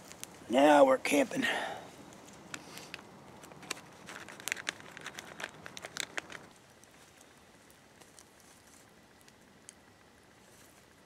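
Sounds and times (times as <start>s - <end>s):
plastic packaging crackling: 2.2s - 9.8s.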